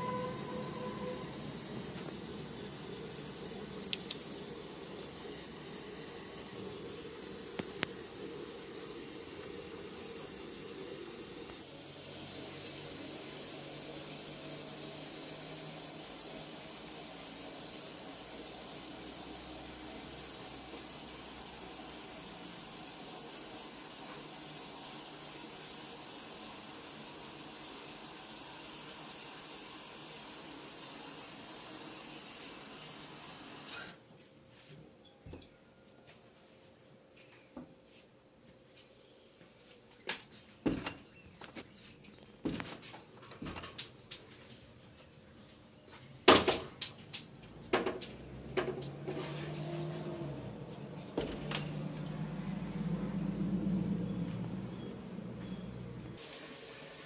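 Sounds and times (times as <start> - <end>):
running water rushing: 0.0 - 25.8.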